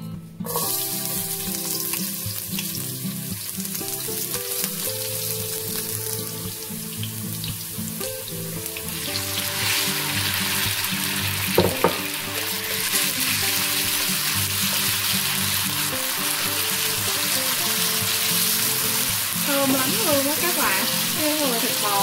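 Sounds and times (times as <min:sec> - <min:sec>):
garlic sizzling in hot oil: 0:00.5 - 0:22.0.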